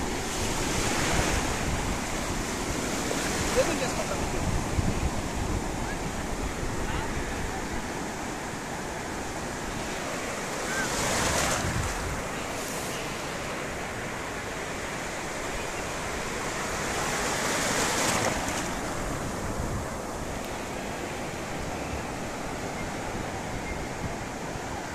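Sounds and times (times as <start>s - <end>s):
wind rumble on microphone: 0.0s - 8.3s, 10.9s - 12.4s, 16.2s - 20.4s
sea surf washing up beach: 0.0s - 24.9s.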